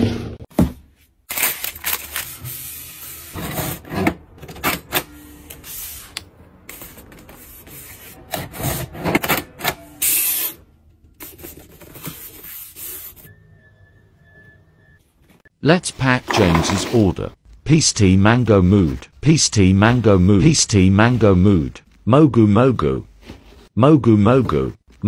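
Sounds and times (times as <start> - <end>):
packing tape rustling and scraping: 1.3 - 5.1.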